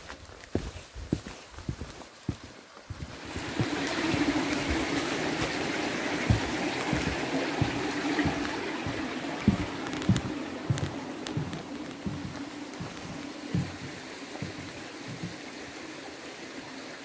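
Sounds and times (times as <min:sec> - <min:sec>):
flowing water: 0:00.0 - 0:17.0
low thuds: 0:06.2 - 0:15.4.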